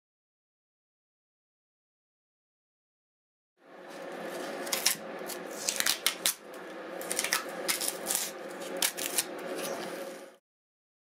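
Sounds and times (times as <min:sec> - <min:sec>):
steady background hum: 0:03.6 - 0:10.4
masking tape peeling and crumpling: 0:03.9 - 0:10.3.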